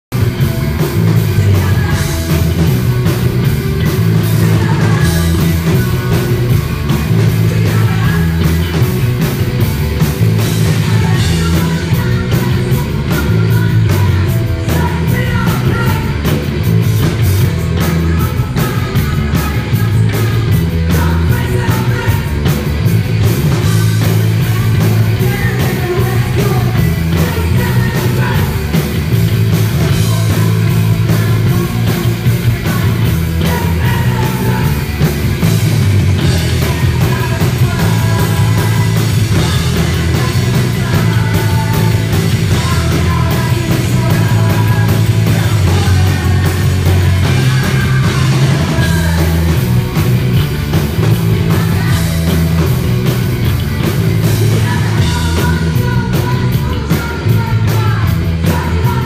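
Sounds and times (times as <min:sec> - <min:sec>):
heavy pulsing bass: 0:00.0 - 0:59.0
punk rock band playing: 0:00.0 - 0:59.0
steady drum beat: 0:00.0 - 0:59.0
woman singing: 0:01.0 - 0:02.8, 0:03.8 - 0:08.9, 0:10.4 - 0:35.6, 0:36.2 - 0:49.6, 0:51.1 - 0:52.7, 0:54.2 - 0:59.0.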